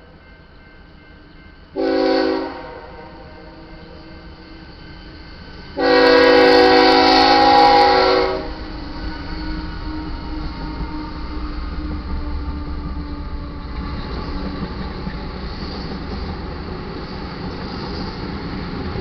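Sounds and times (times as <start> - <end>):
train rumble: 0.0 - 19.0
locomotive air horn: 1.8 - 3.6, 5.8 - 11.5.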